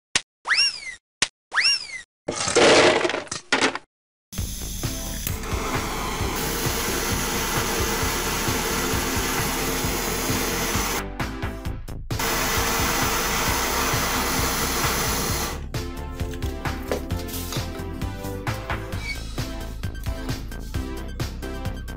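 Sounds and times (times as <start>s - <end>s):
butane torch hissing: 4.4s - 11.0s, 12.2s - 15.6s
background music with a beat: 4.4s - 21.9s.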